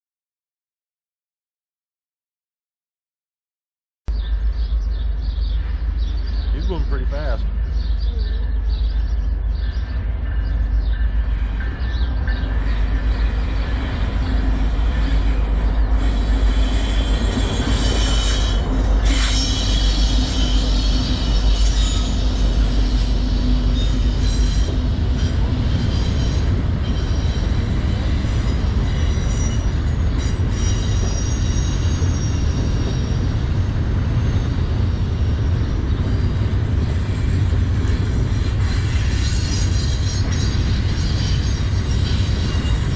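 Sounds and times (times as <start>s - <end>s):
diesel locomotives rumbling: 4.1s - 42.9s
high-pitched wheel squeal: 16.0s - 33.4s, 38.6s - 42.9s.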